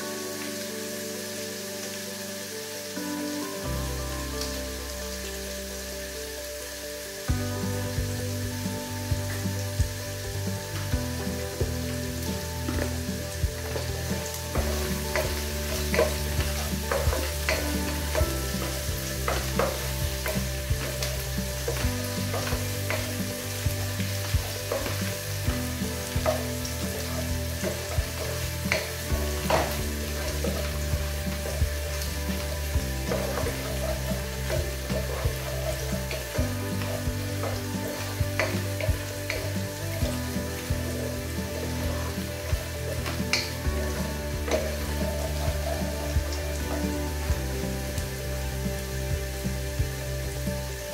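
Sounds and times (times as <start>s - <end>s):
food sizzling in hot oil: 0.0s - 50.9s
wooden spoon scraping pot: 9.4s - 47.9s.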